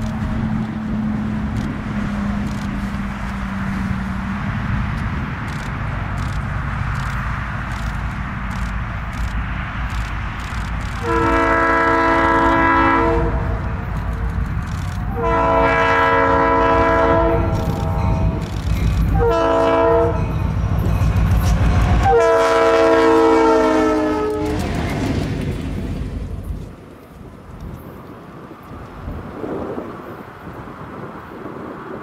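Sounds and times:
diesel engine low rumble: 0:00.0 - 0:32.0
locomotive air horn blasts: 0:11.0 - 0:13.7, 0:15.0 - 0:20.5, 0:21.8 - 0:24.7.

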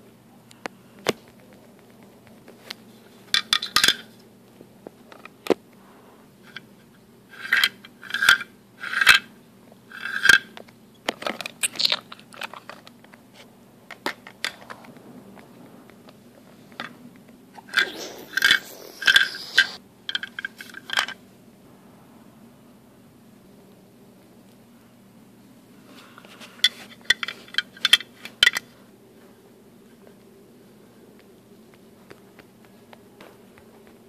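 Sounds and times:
plastic toys scraping: 0:17.6 - 0:19.8
plastic toys clicking and tapping: 0:20.1 - 0:21.2.

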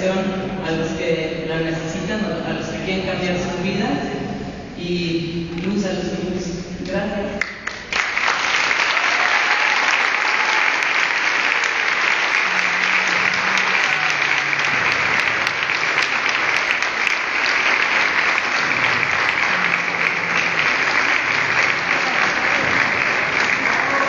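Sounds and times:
audience applauding: 0:07.4 - 0:24.0.

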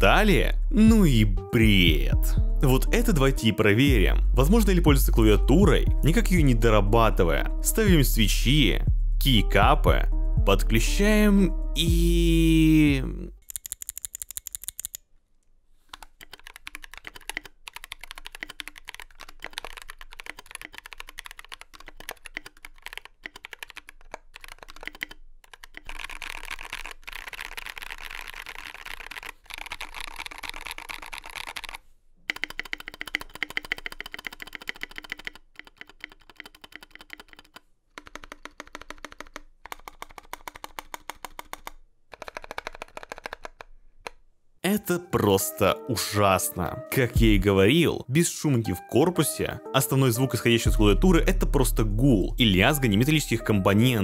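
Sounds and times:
keyboard typing clicks: 0:13.4 - 0:15.0, 0:15.9 - 0:26.6, 0:29.0 - 0:43.7.

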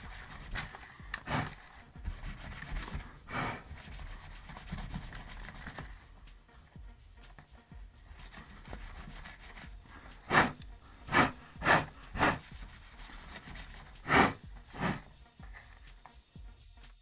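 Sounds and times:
puffs of breath blowing: 0:00.6 - 0:01.8, 0:03.0 - 0:03.8, 0:09.8 - 0:12.6, 0:14.0 - 0:15.8.

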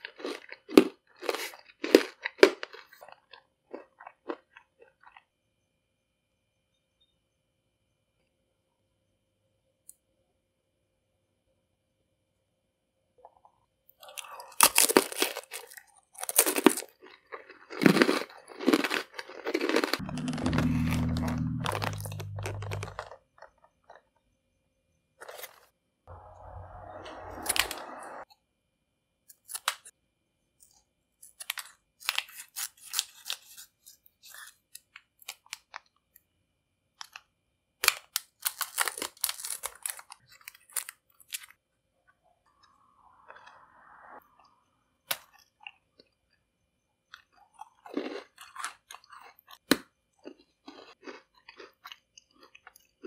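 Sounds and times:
crunchy biting and chewing: 0:00.0 - 0:05.3, 0:14.0 - 0:23.6, 0:37.9 - 0:41.5, 0:47.1 - 0:53.0
low hum: 0:20.0 - 0:23.1, 0:26.1 - 0:28.3
plastic packets crinkling: 0:38.2 - 0:41.5.

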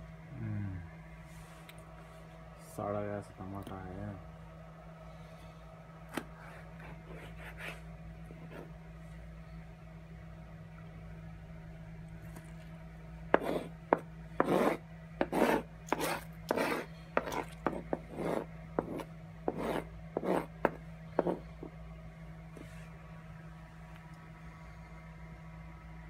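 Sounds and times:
knife slicing tomato: 0:13.4 - 0:21.4.

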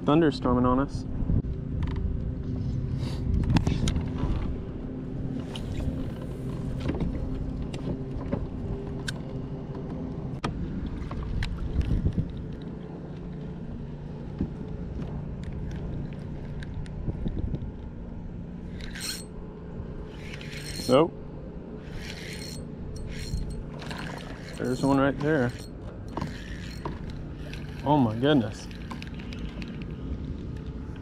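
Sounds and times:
pedal drive hum: 0:12.2 - 0:31.0.

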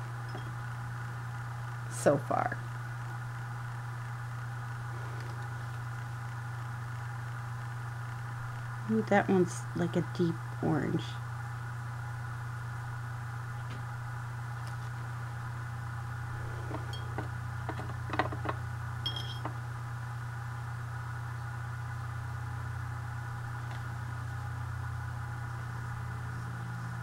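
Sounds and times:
low hum: 0:00.0 - 0:27.0
light clink: 0:19.1 - 0:19.5.

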